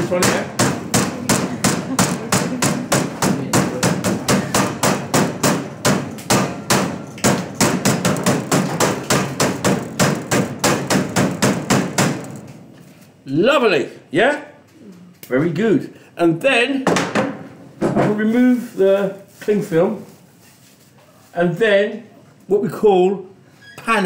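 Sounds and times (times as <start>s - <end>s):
mallet pounding meat: 0.0s - 12.4s.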